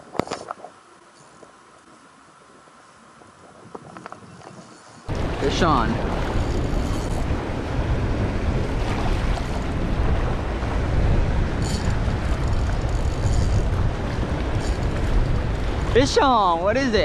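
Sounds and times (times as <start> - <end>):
wind buffeting microphone: 3.2 - 17.0
surf washing: 4.8 - 17.0.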